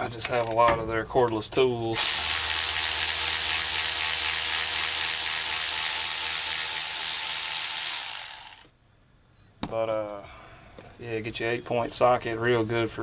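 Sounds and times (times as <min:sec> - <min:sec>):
electric ratchet running: 0:02.0 - 0:08.7.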